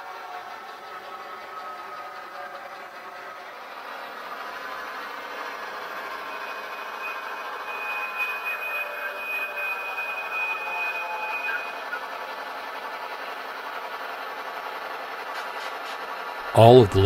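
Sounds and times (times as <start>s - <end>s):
model train diesel engine sound: 0.0s - 17.0s
high-pitched whine: 4.6s - 12.3s.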